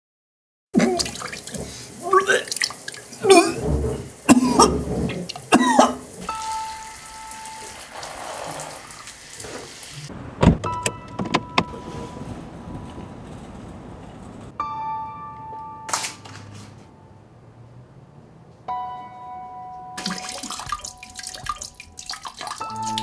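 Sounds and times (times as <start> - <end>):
man retching and gagging: 0.8 - 6.4
shower water spraying: 0.8 - 10.1, 20.0 - 23.0
car park noise: 9.2 - 19.9
loud thump: 10.4 - 11.4.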